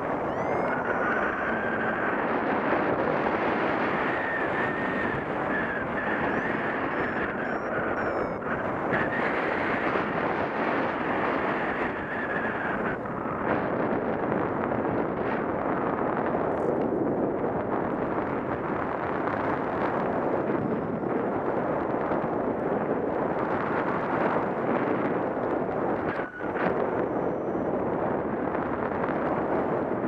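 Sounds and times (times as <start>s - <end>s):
wind buffeting microphone: 0.0s - 30.0s
thin wavering whistle: 0.2s - 1.7s, 5.6s - 8.4s.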